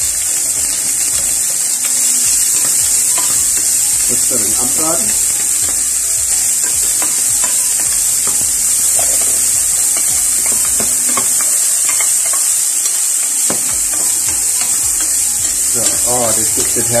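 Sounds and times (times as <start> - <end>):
bacon sizzling in pan: 0.0 - 17.0.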